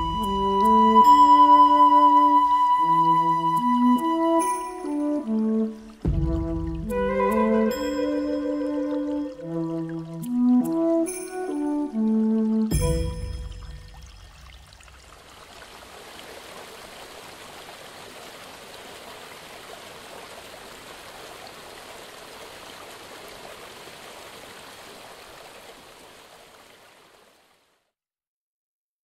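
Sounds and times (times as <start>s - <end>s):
flute music: 0.0s - 14.1s.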